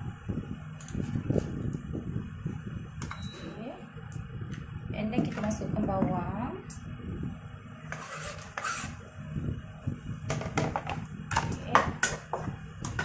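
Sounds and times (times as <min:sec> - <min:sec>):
kitchen utensils knocking and clinking: 0:10.3 - 0:13.0.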